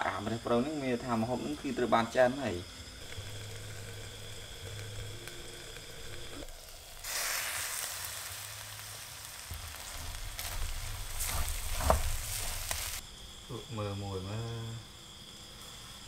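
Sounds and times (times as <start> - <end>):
meat sizzling in a wok: 2.7 - 13.0
metal spatula scraping wok: 9.8 - 13.0.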